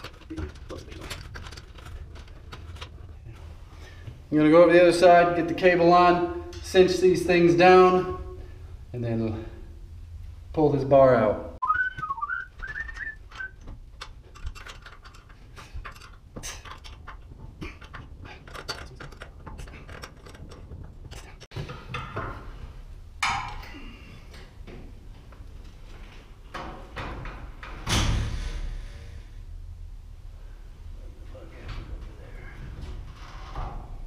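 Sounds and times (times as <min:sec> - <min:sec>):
metal bars clicking and clinking: 0:12.6 - 0:22.1.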